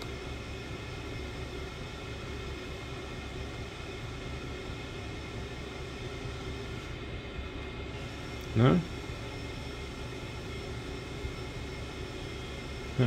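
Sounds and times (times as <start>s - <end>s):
equipment hum and whir: 0.0s - 13.0s.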